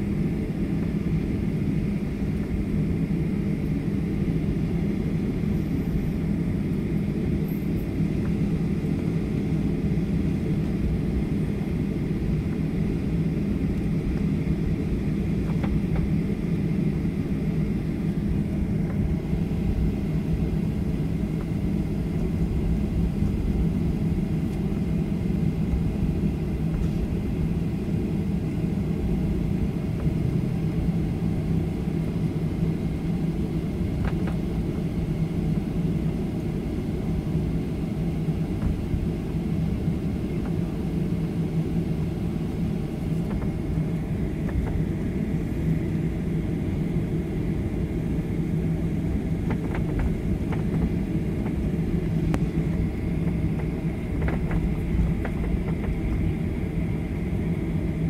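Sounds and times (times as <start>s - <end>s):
constant low hum: 0.0s - 58.0s
jet engines idling drone: 0.0s - 58.0s.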